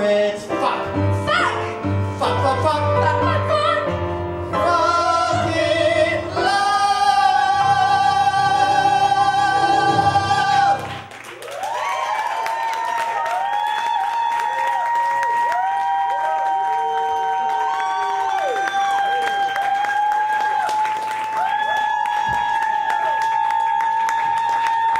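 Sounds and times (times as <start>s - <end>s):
orchestral music: 0.5s - 11.1s
man and woman singing opera: 2.2s - 11.0s
audience applause and cheers: 7.4s - 24.9s.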